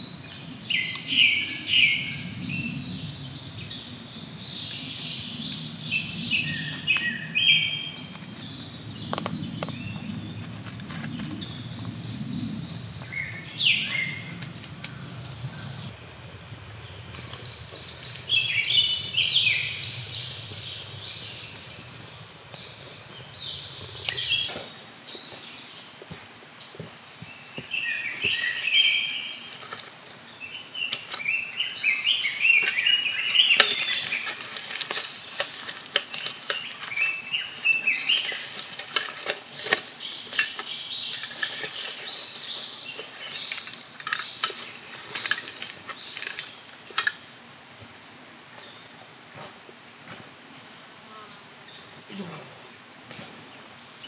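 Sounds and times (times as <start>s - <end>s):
small birds chirping: 0.0s - 26.0s, 26.6s - 47.4s
camping gear clinking: 30.8s - 47.2s.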